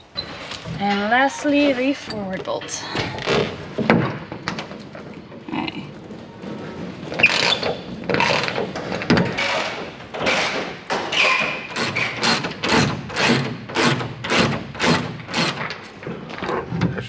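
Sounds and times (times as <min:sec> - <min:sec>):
wrench turning nut: 0:11.1 - 0:15.8.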